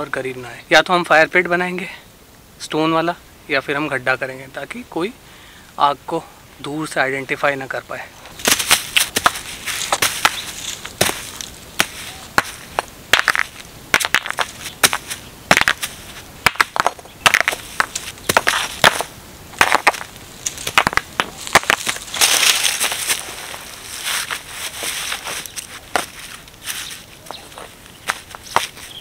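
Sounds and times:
dry leaves and twigs crunching: 8.2s - 29.0s
rocks knocking together: 8.3s - 23.6s, 24.2s - 29.0s.

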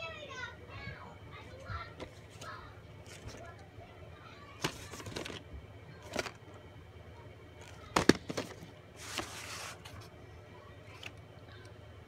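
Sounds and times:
plastic tape case clicks: 7.9s - 8.6s
rustling scrape: 9.0s - 10.1s.

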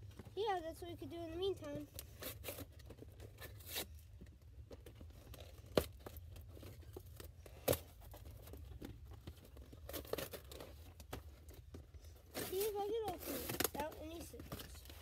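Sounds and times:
cardboard tape tearing: 2.0s - 4.0s, 9.8s - 11.6s, 12.3s - 15.0s.

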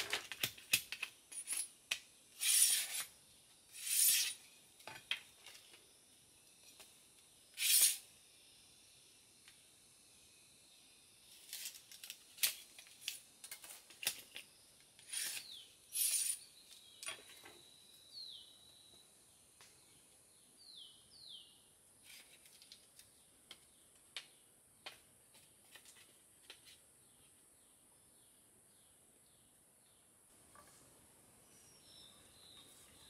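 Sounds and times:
high insect hiss: 0.9s - 22.4s.

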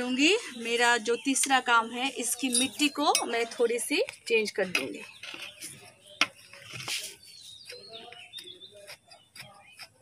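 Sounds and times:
bird chirping: 0.0s - 10.0s
hand tool scraping potting soil: 4.6s - 10.0s.

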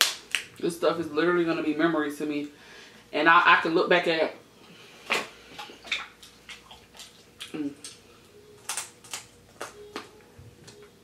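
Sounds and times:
lip smacks and slurps: 5.6s - 7.6s.

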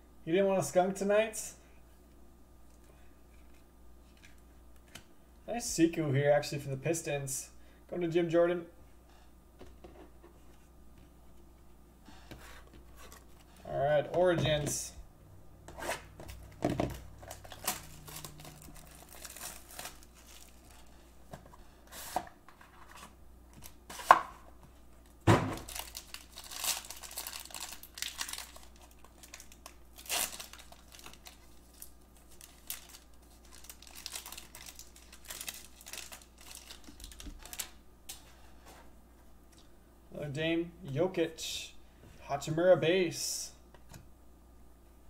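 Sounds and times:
packaging rustling and clicking: 16.2s - 21.5s, 25.6s - 38.2s
foil wrapper tearing and crinkling: 17.0s - 20.9s, 25.6s - 37.8s.

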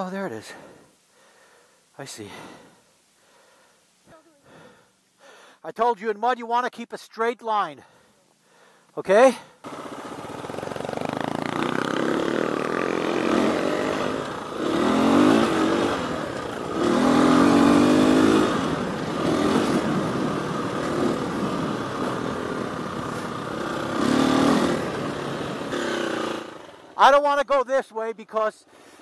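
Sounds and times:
dirt bike engine revving: 9.6s - 27.0s.

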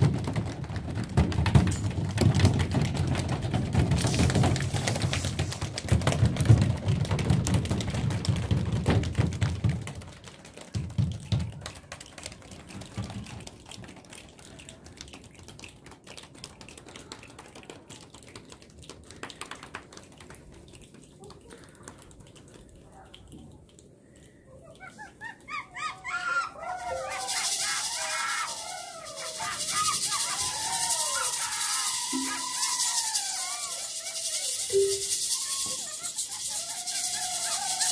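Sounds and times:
hands slapping thighs: 0.0s - 22.6s
hand claps: 0.0s - 23.2s, 26.7s - 37.9s.

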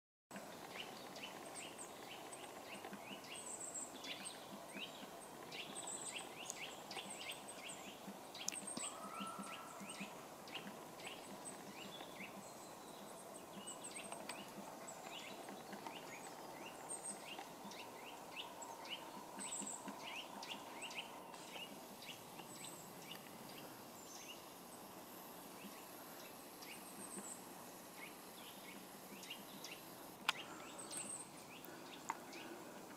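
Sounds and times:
small birds chirping: 0.3s - 32.9s
woodpecker tapping on wood: 3.9s - 22.5s.

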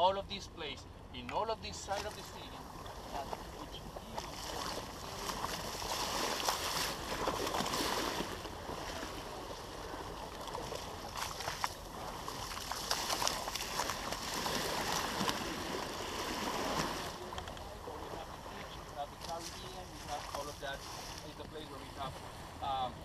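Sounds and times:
water rushing along boat hull: 1.3s - 23.0s
sharp water splashes: 1.8s - 21.3s.

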